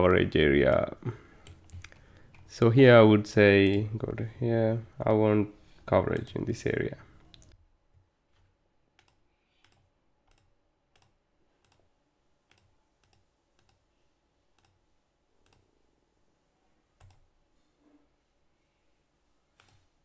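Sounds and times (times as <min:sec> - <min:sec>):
computer mouse clicks: 0:01.4 - 0:02.5, 0:09.0 - 0:11.9, 0:12.5 - 0:13.8, 0:14.6 - 0:14.8, 0:15.4 - 0:15.7, 0:17.0 - 0:17.3, 0:19.6 - 0:19.9.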